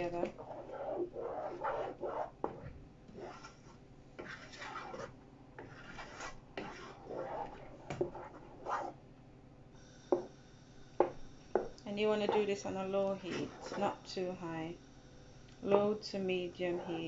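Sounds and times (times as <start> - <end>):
spoon scraping saucepan: 3.2 - 8.9, 13.2 - 14.0.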